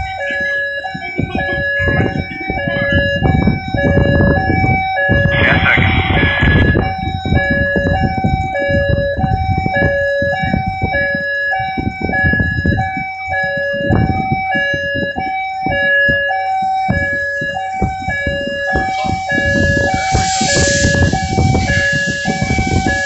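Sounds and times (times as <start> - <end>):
two-tone warning alarm: 0.0 - 23.0
low rumbling noise: 2.7 - 8.4, 18.7 - 23.0.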